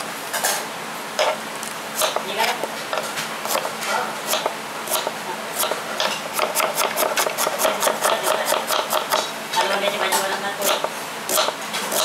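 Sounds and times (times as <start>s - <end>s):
knife chopping on wooden board: 2.0s - 2.3s, 2.9s - 3.7s, 4.3s - 9.8s, 10.6s - 12.0s.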